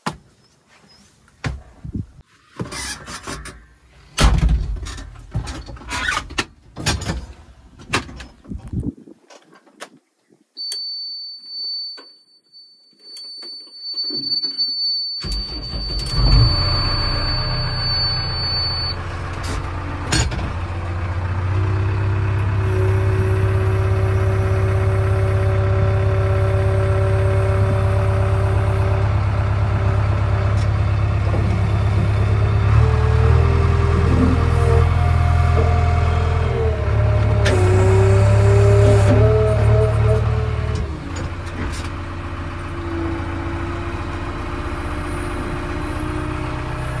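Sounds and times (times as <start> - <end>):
high-pitched dashboard warning tone: 10.6 - 19.0
diesel engine idling: 15.3 - 47.0.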